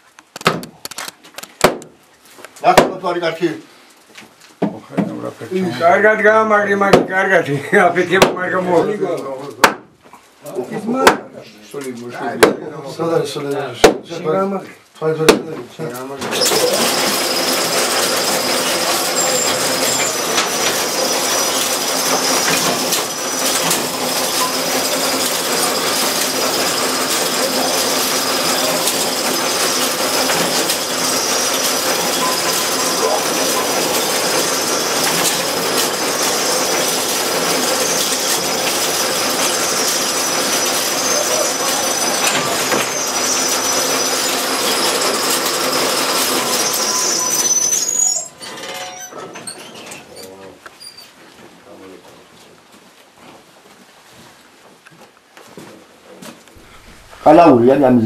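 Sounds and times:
mine hoist machinery rattling: 16.2 - 50.2
high metallic whine: 16.4 - 49.5.

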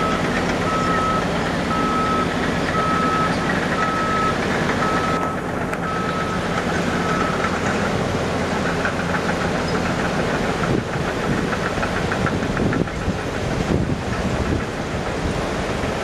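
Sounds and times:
backup alarm beeping: 0.0 - 6.4
truck diesel engine running: 0.0 - 16.0.

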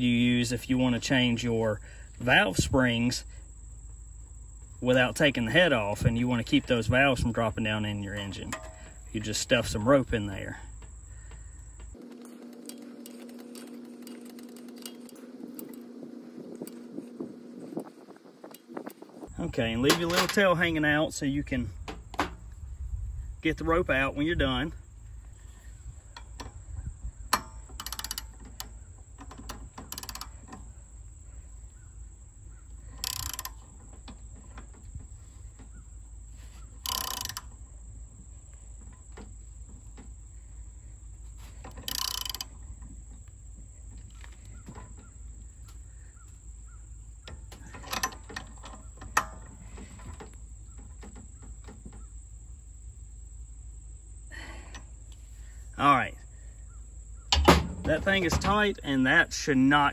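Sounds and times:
hand ratchet clicking: 27.3 - 30.6, 32.9 - 33.9, 36.8 - 37.6, 41.6 - 42.7.

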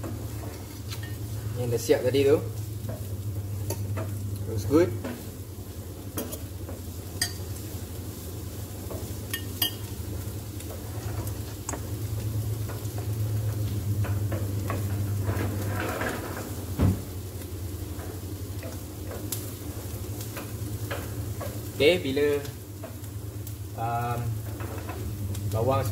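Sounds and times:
onion frying in oil: 0.0 - 25.9
steady low hum: 0.0 - 25.9
wooden spatula scraping a pan: 10.6 - 11.9, 14.1 - 17.1.

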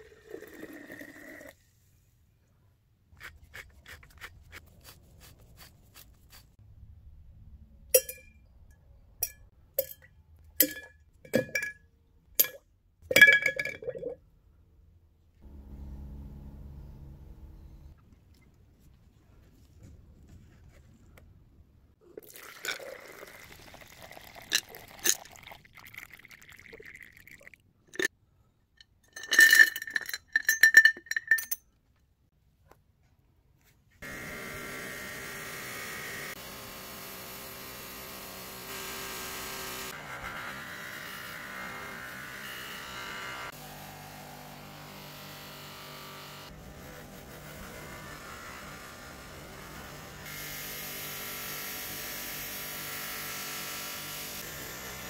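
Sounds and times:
liquid pouring: 0.0 - 1.6, 13.1 - 14.2, 22.1 - 28.1
glass clinking: 8.0 - 8.4, 9.2 - 11.8, 12.4 - 14.2, 29.0 - 31.6
buffing wheel motor humming: 15.4 - 17.9, 34.0 - 40.0.

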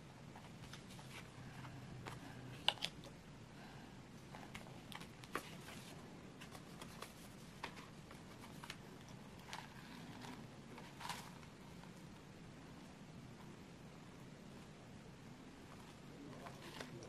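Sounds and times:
paper rustling: 4.4 - 12.0, 15.7 - 17.0.

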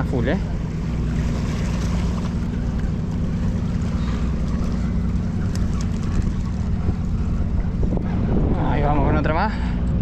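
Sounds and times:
boat engine idling: 0.0 - 10.0
wind noise on microphone: 5.4 - 10.0.

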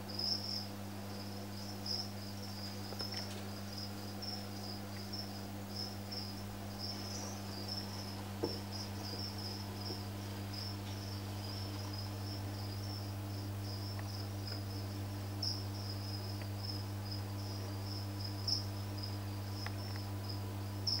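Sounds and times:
cricket chirping: 0.0 - 21.0
low electrical hum: 0.0 - 21.0.

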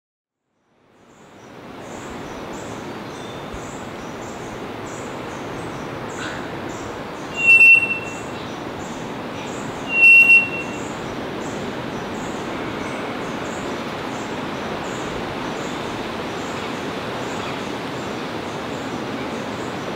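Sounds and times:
bird bell-like call: 7.3 - 8.4, 9.7 - 11.0.

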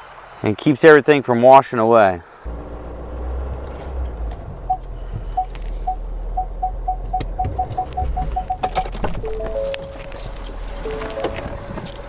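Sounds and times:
truck engine rumble: 2.5 - 12.0
parking sensor beeps: 4.6 - 11.6.

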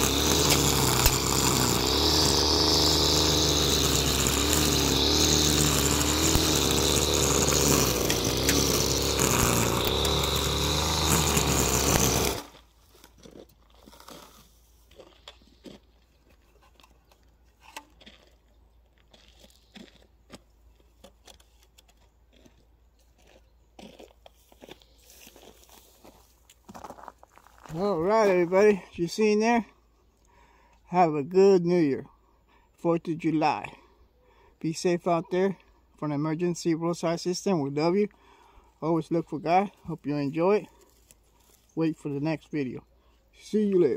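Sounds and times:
string trimmer engine: 0.0 - 12.7, 27.7 - 28.8.

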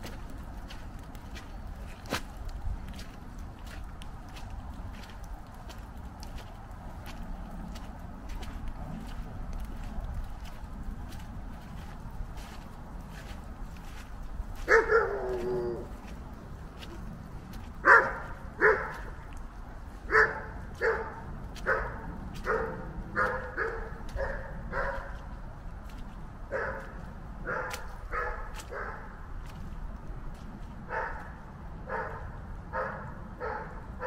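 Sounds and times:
dog barking: 14.6 - 15.8, 17.8 - 19.1, 20.1 - 25.2, 26.5 - 29.1, 30.9 - 33.8.

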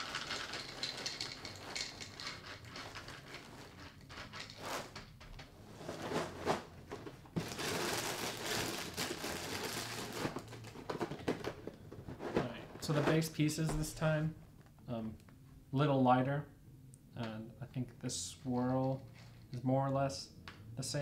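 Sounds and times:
plastic bag crinkling: 0.0 - 5.0, 7.4 - 11.4
dry cereal rattling into a bowl: 0.0 - 5.1, 7.4 - 10.7.

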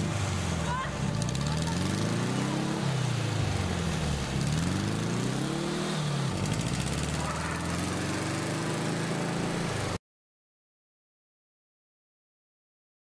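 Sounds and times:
road noise: 0.0 - 10.0
car engine accelerating through gears: 3.9 - 10.0.

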